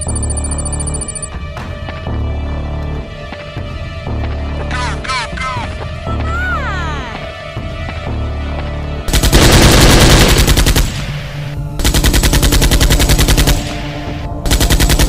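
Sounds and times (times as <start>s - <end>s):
automatic gunfire bursts: 9.1s - 11.2s, 11.8s - 13.8s, 14.5s - 15.0s.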